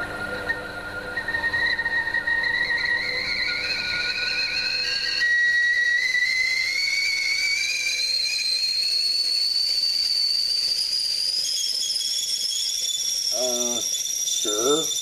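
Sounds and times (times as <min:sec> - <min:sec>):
high-pitched whistle: 0:00.0 - 0:15.0
hiss: 0:07.0 - 0:15.0.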